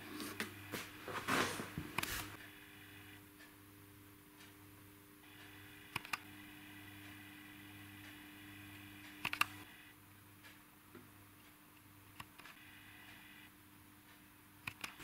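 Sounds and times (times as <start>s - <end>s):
faint steady hum: 0.0s - 15.0s
sharp clicks: 5.4s - 6.3s, 9.0s - 9.7s, 12.2s - 13.3s, 14.6s - 15.0s.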